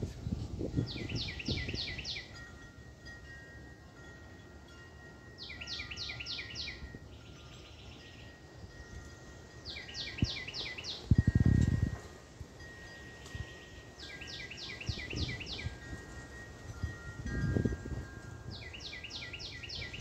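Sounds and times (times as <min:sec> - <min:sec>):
wind chime tones: 0:00.2 - 0:20.0
songbird whistling: 0:00.8 - 0:02.4, 0:05.4 - 0:08.4, 0:09.6 - 0:11.2, 0:13.0 - 0:15.8, 0:18.5 - 0:20.0.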